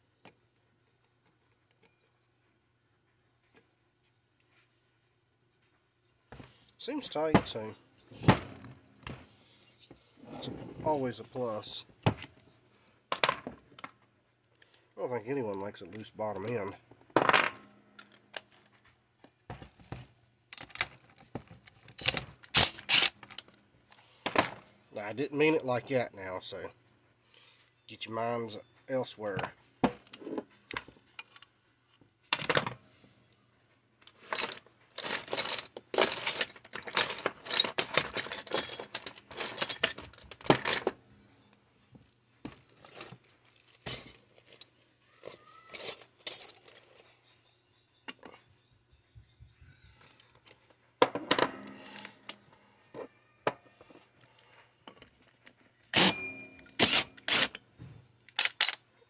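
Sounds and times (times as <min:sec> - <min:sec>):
metal tools clinking on workbench: 0:34.2 - 0:41.0, 0:42.8 - 0:47.1, 0:55.9 - 0:57.4.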